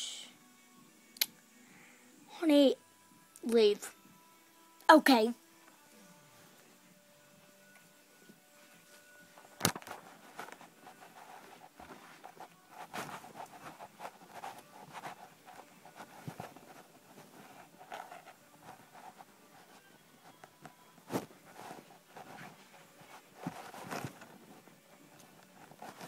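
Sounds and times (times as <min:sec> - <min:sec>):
rustling and light tapping: 0:07.8 - 0:26.0.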